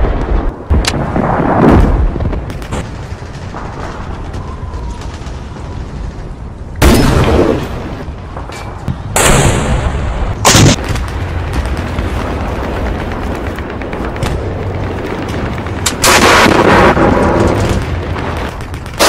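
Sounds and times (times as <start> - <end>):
explosions: 0.0 - 5.8, 9.0 - 19.0
gunfire: 15.8 - 19.0.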